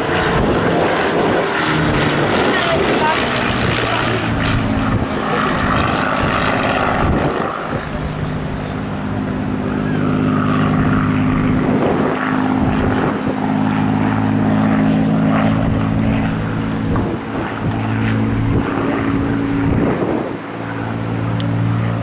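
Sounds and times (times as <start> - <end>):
propeller plane engine droning: 0.0 - 22.0.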